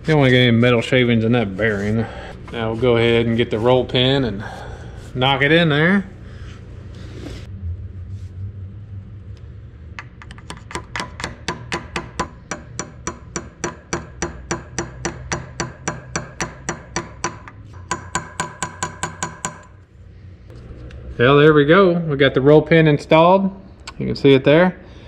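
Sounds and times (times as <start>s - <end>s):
hammer tapping metal: 10.0s - 19.8s.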